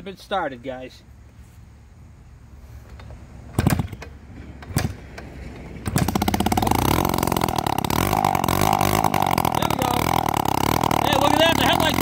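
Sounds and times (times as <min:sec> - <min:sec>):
two-stroke engine crackling: 0:03.5 - 0:12.0
kick-start bangs: 0:05.8 - 0:12.0.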